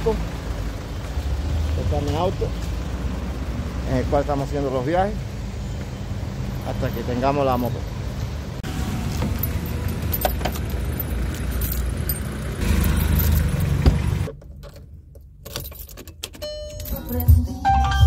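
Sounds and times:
street rumble: 0.0s - 16.2s
keys jangling in a car lock: 9.2s - 17.6s.

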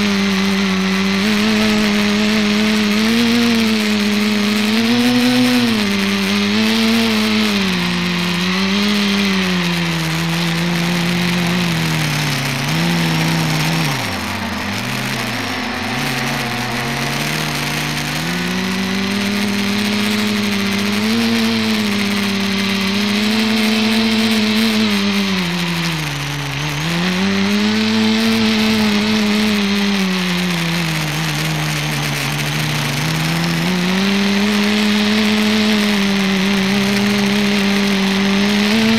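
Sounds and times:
drone propellers whirring: 0.0s - 38.9s.

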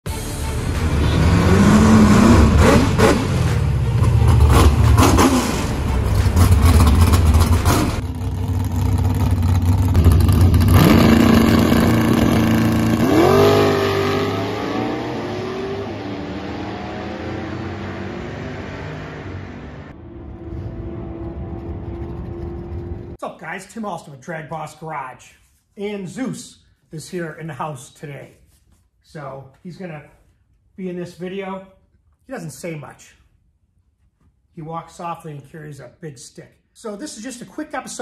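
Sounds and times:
drag cars revving and launching: 0.6s - 23.2s.

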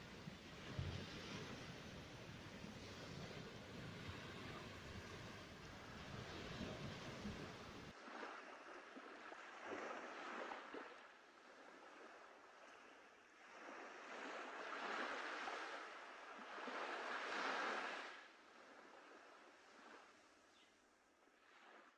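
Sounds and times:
small waves washing onto shore: 0.0s - 20.4s, 21.2s - 21.9s.

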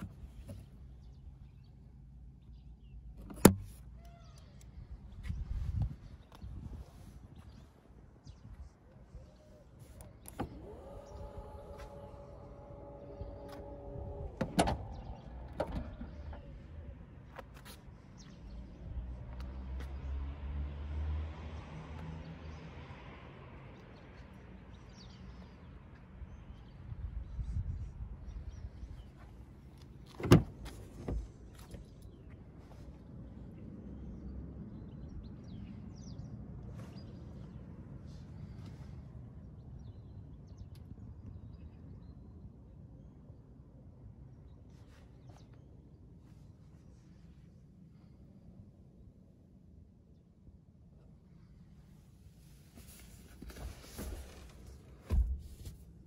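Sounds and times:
low outdoor rumble: 0.0s - 56.0s
tailgate latching thud: 3.2s - 3.8s, 10.2s - 16.5s, 30.1s - 31.3s
birds chirping: 6.0s - 19.0s.

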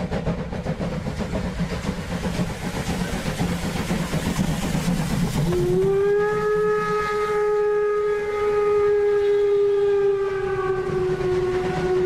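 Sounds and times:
steam locomotive whistle: 5.4s - 12.0s.

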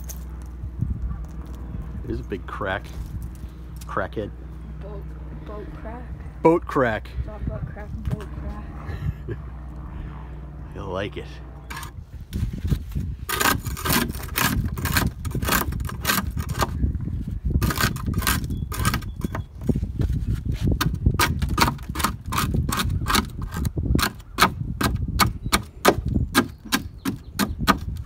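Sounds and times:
steady low rumble: 0.0s - 26.6s
scraper chipping barnacles: 12.6s - 16.8s, 17.6s - 19.3s, 20.6s - 28.0s.

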